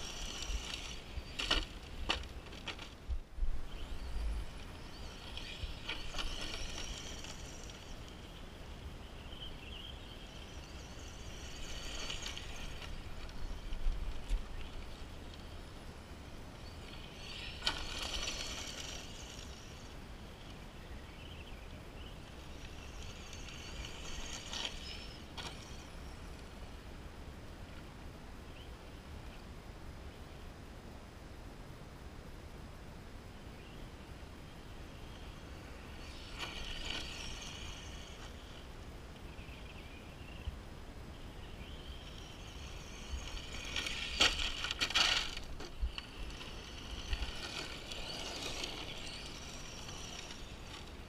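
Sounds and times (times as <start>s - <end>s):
tyres hissing over gravel: 0.0s - 3.0s, 4.6s - 13.7s, 16.6s - 20.7s, 22.0s - 26.4s, 35.0s - 38.7s, 41.6s - 51.0s
electric motor and drivetrain whine: 0.0s - 26.8s, 34.5s - 40.5s, 41.1s - 51.0s
low wind rumble on microphone: 0.0s - 51.0s.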